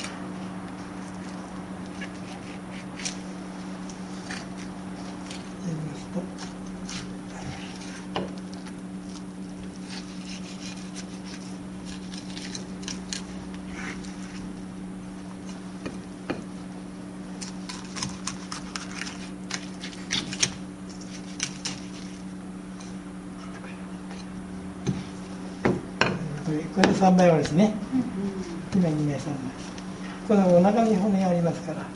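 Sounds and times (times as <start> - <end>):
steady low hum: 0.0 - 31.9
knife clicking and scraping on bones: 17.4 - 20.6.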